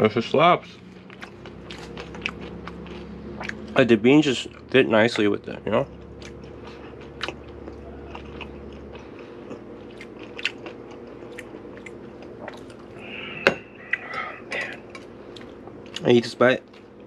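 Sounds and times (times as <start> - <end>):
chewing crisp tostada shell: 0.8 - 5.3, 5.9 - 12.9.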